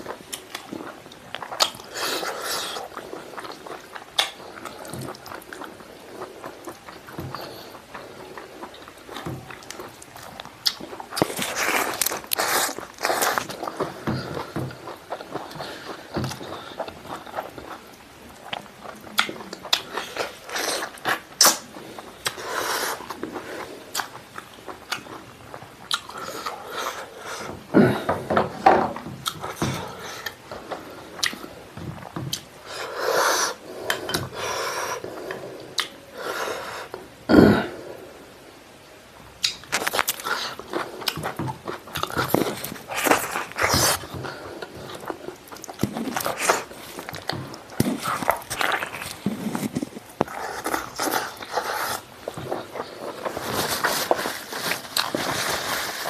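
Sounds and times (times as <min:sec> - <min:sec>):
person chewing and crunching food: 0:00.0 - 0:37.7, 0:39.4 - 0:56.0
wet mouth clicks: 0:35.8 - 0:36.0, 0:39.4 - 0:39.7.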